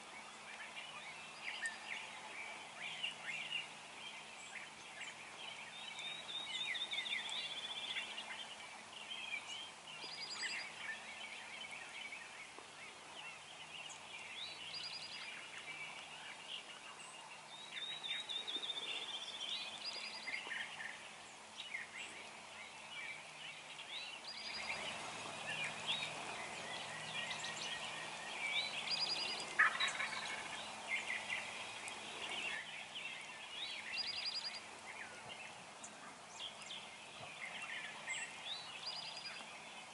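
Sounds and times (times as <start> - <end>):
songbirds chirping and trilling: 0.0 - 39.9
wild turkey calling: 24.5 - 32.7.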